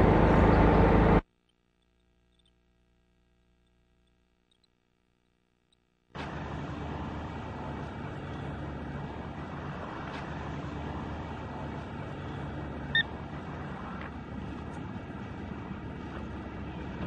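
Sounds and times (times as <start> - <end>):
traffic with car engines: 0.0 - 1.3, 6.2 - 17.0.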